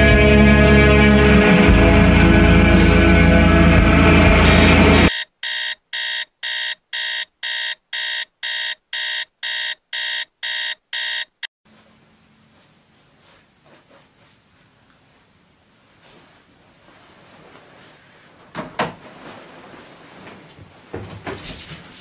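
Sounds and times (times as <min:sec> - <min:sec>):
phone alarm beeping: 0:04.4 - 0:11.5
bedding rustling: 0:15.9 - 0:22.0.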